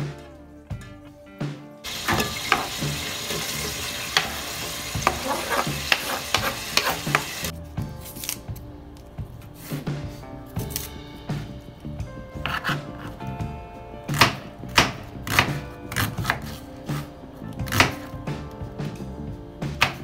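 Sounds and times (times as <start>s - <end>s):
background music with steady beat: 0.0s - 20.0s
onion sizzling in hot oil: 1.9s - 7.5s
spatula scraping a steel pot: 2.1s - 7.5s.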